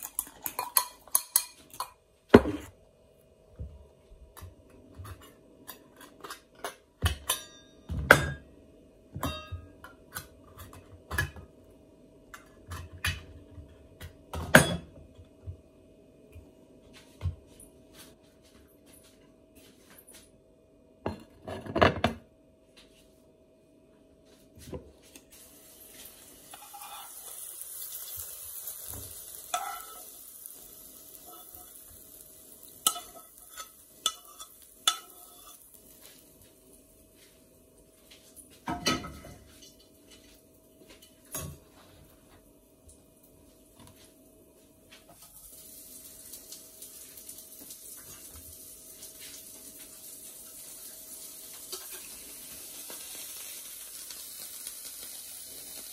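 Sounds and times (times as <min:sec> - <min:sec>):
plate set down on counter: 0:02.4 - 0:02.7, 0:21.1 - 0:22.2
sizzling hiss from pan: 0:25.1 - 0:42.3, 0:44.9 - 0:55.9
serving spoon scraping and clinking: 0:26.5 - 0:27.5, 0:29.5 - 0:30.2, 0:32.8 - 0:35.8.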